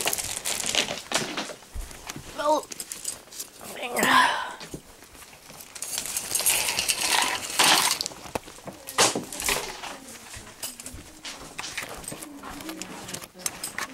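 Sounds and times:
camera handling rustling and scraping: 0:05.0 - 0:13.9.

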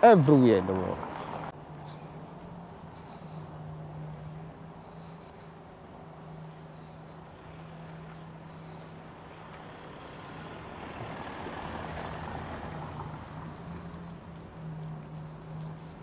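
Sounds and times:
van driving past on cobbles: 0:09.2 - 0:16.0.

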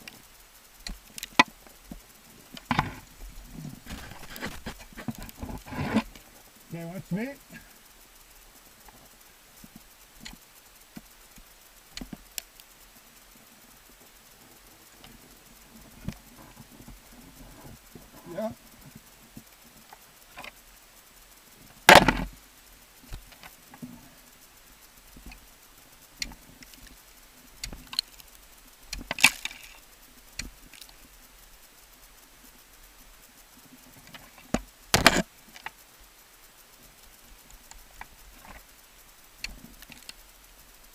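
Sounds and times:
ice axes striking ice: 0:21.9 - 0:22.3.

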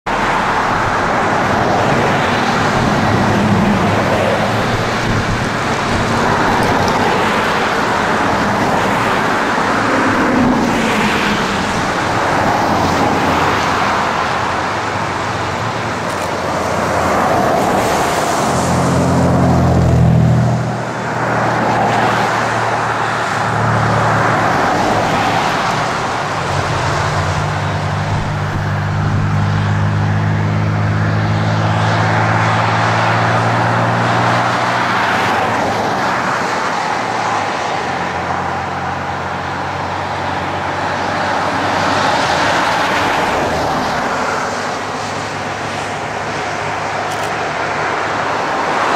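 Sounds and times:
cars passing on highway: 0:00.1 - 0:48.9
nearby vehicle engine hum: 0:14.4 - 0:34.3.

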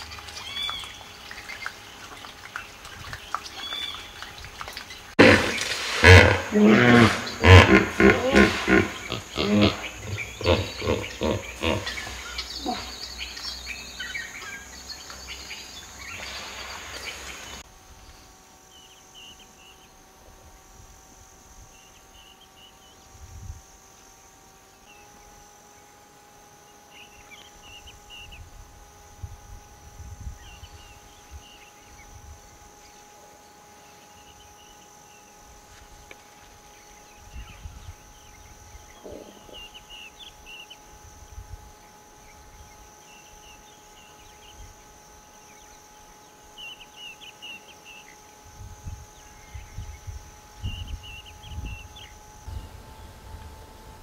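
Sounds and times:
insects droning in grass: 0:00.0 - 0:54.0
hippo grunting call: 0:05.2 - 0:13.0, 0:39.0 - 0:39.8.

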